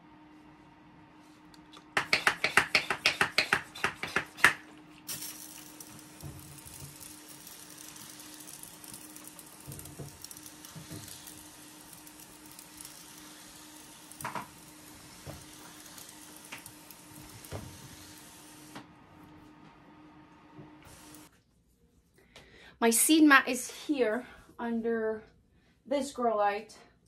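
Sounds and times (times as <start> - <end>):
spray bottle misting hiss: 2.2 - 18.8.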